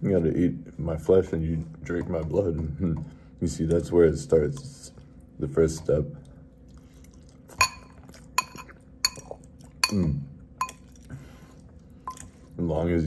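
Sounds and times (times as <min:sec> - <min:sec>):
cutlery clinking against dish: 0:07.6 - 0:10.9.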